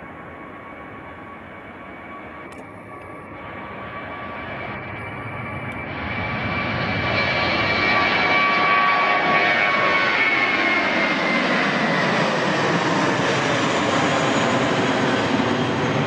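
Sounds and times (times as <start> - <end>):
jet airliner taking off: 0.0 - 16.0.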